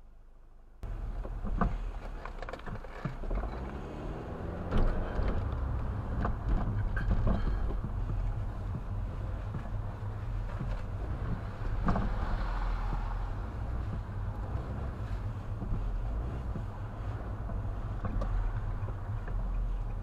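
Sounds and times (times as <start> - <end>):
car engine and tyres rumbling: 0.0 - 20.0
short knocks and rattles: 4.4 - 20.0.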